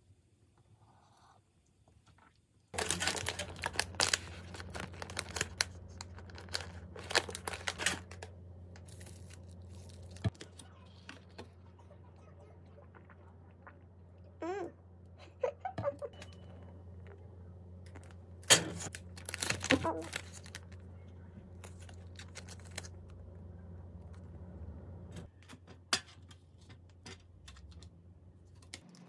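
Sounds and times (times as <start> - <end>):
plastic wrapper crinkling: 2.8 - 11.4, 17.9 - 23.4.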